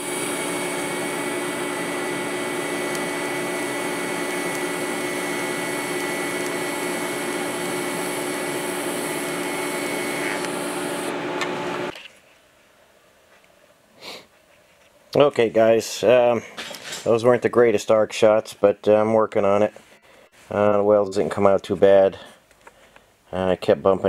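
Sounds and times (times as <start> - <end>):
welding arc hissing buzz: 0.0 - 11.9
thin high whine: 0.0 - 12.0.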